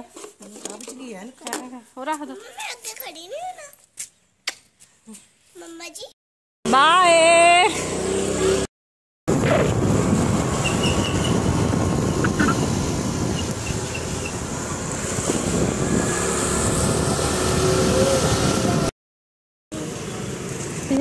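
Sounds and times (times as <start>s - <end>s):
motorbike road noise: 6.7s - 8.7s, 9.3s - 19.0s, 19.7s - 21.0s
wind rush over microphone: 9.3s - 18.9s.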